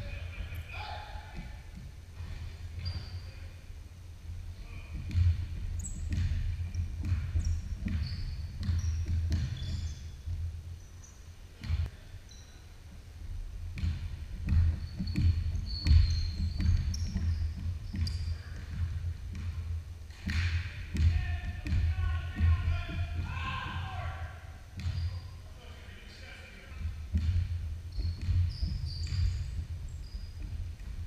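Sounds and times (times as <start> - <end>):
sneaker squeaks: 0.1 - 3.7, 4.6 - 12.8, 13.8 - 31.0
basketball bouncing on wooden floor: 1.3 - 3.2, 4.9 - 10.5, 11.6 - 11.9, 13.7 - 23.9, 24.8 - 25.3, 26.7 - 31.0.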